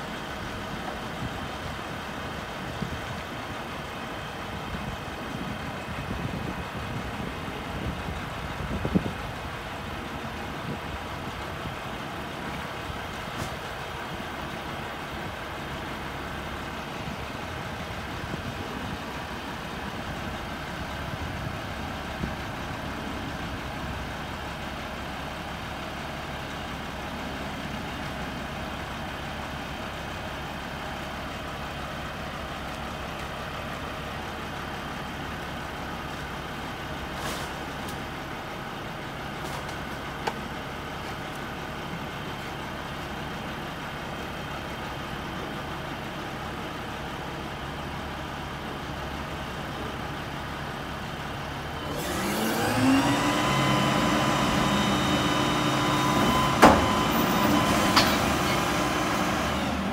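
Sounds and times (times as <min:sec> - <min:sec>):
diesel engine idling: 0:00.0 - 0:59.9
engine revving with rising whine: 0:51.8 - 0:59.9.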